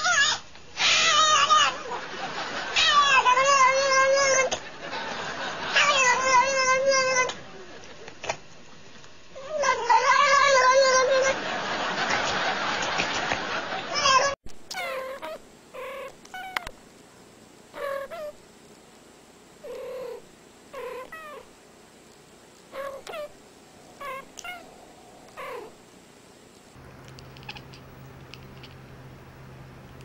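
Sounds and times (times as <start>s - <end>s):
cats meowing: 0.0s - 1.8s, 2.8s - 4.6s, 5.8s - 7.4s, 9.4s - 11.4s, 13.9s - 16.7s, 17.8s - 18.4s, 20.8s - 21.5s, 22.7s - 25.8s
steady low hum: 14.5s - 30.0s.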